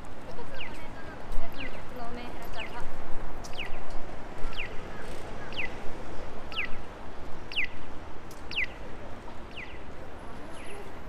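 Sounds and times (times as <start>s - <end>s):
city street noise: 0.0s - 11.0s.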